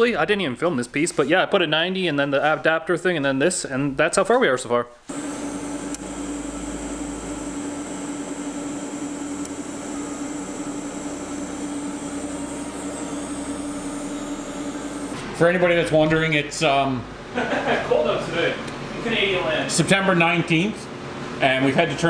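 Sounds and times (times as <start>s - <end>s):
welder electrical hum: 5.0s - 17.8s
welding arc hiss: 5.1s - 15.2s.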